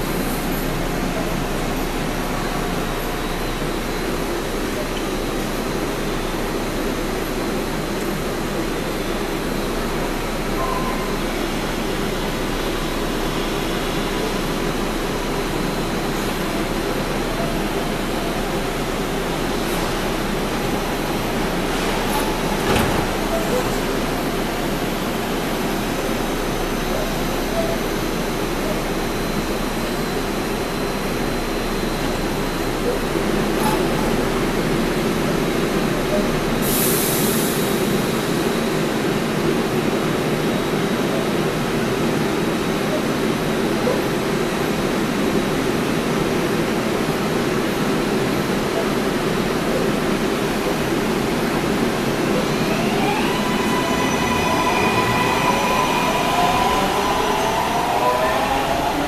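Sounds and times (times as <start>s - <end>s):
railcar ventilation hum and hiss: 0.0s - 59.0s.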